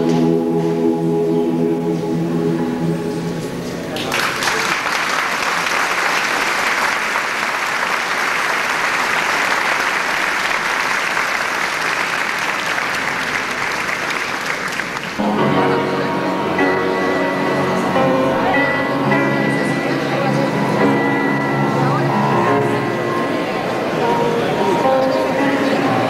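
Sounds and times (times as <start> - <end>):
music: 0.0 - 4.1, 15.2 - 26.0
audience applauding: 4.0 - 15.2.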